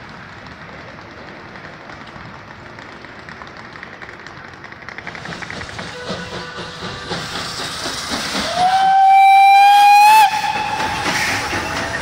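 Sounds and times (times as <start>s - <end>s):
steam hissing: 5.0s - 12.0s
steam whistle: 8.4s - 11.8s.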